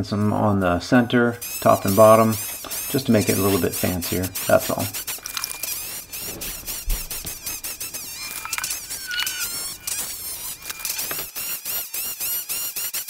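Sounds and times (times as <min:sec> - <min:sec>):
graver squeaking on metal: 0:00.6 - 0:13.0.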